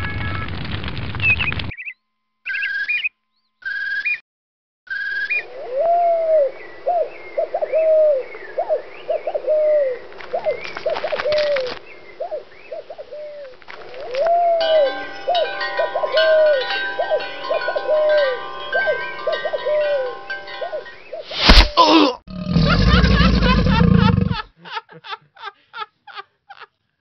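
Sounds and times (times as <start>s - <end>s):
small birds chirping: 1.2s - 4.2s, 6.1s - 21.4s
doves cooing: 5.3s - 21.4s, 22.3s - 24.5s.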